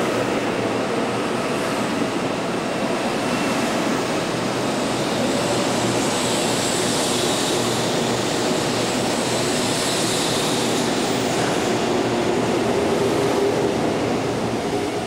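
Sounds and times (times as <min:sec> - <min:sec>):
high-speed train passing: 0:00.0 - 0:15.0.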